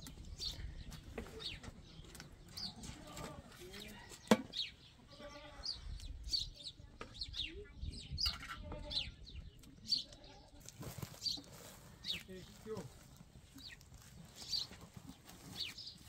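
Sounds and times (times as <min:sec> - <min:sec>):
small birds chirping: 0:00.0 - 0:16.0
goat bleating: 0:02.9 - 0:03.6, 0:05.0 - 0:05.8, 0:08.5 - 0:09.2.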